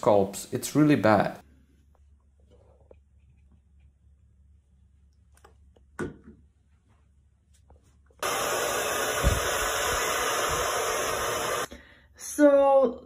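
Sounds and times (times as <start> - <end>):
hair dryer blowing: 8.2 - 11.7.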